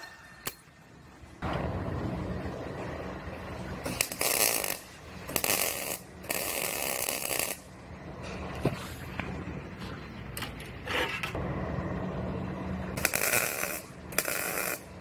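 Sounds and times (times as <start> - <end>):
steady low hum: 0.0 - 15.0
welder arc crackling: 3.8 - 7.8, 13.0 - 15.0.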